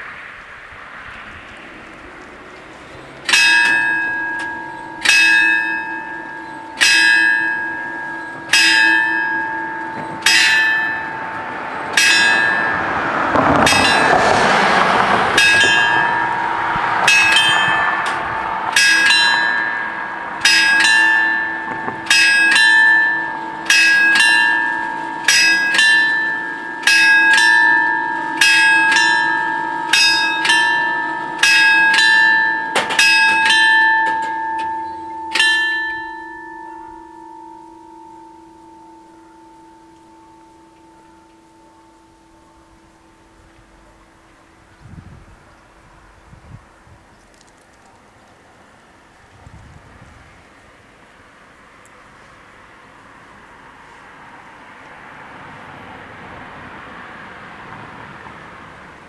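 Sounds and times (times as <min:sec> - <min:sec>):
rushing noise: 0:00.0 - 0:47.1
level-crossing bells ringing: 0:02.8 - 0:44.8
second bell striking: 0:03.3 - 0:14.3, 0:15.3 - 0:44.2.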